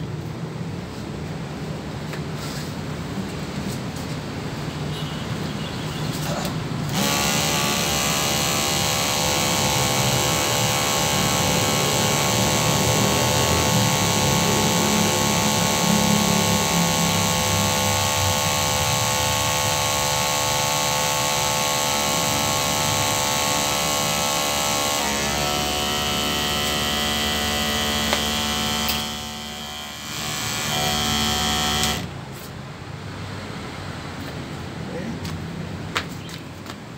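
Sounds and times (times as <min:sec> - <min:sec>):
motorised sprayer pump running: 0:06.9 - 0:32.2.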